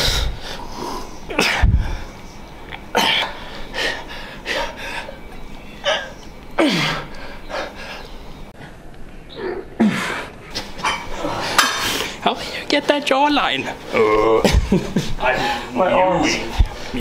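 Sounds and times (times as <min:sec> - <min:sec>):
man exhaling and grunting: 0:09.4 - 0:10.3.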